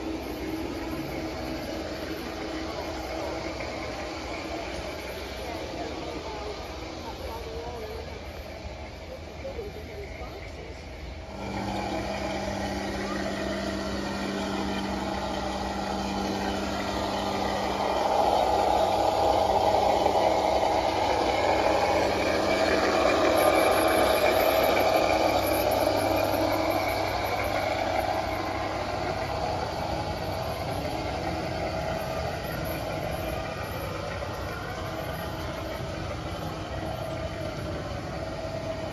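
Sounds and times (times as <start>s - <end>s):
electric motor hum: 0.0s - 38.9s
train wheels rumbling on rails: 0.0s - 38.9s.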